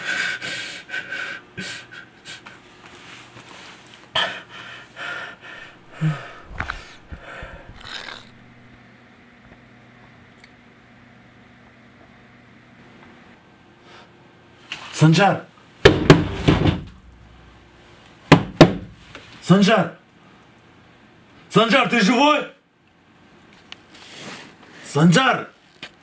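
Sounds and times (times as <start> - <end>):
man breathing heavily and panting: 0.0 - 2.8, 4.1 - 8.7
steady low hum: 0.0 - 19.4.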